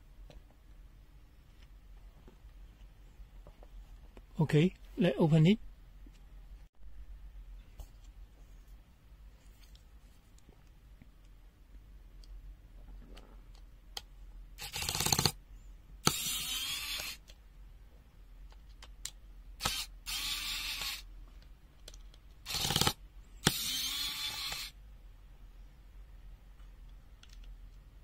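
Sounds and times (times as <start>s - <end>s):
power tool on plastic case: 14.6s - 15.4s, 16.0s - 17.3s, 19.6s - 21.1s, 22.5s - 24.8s.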